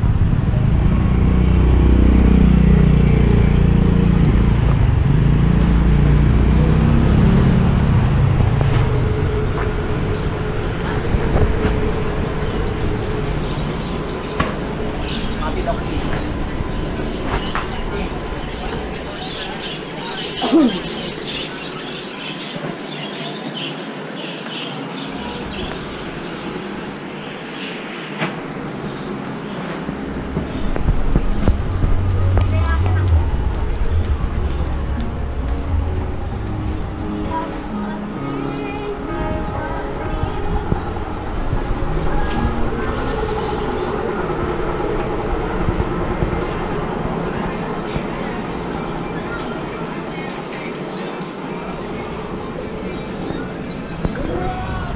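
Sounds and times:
motor vehicle engine running: 0.0s - 20.8s, 29.9s - 49.9s
busy shopping street din: 0.0s - 54.9s.

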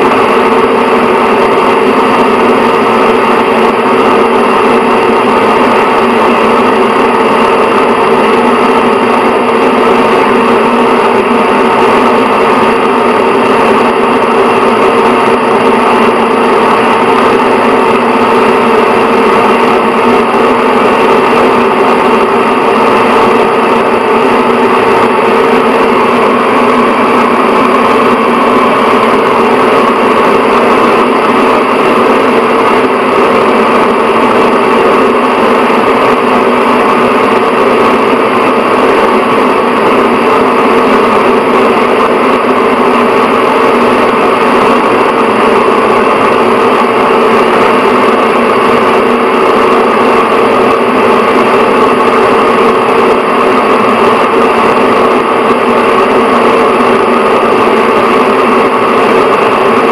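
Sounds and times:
exhaust fan humming: 0.0s - 59.9s.

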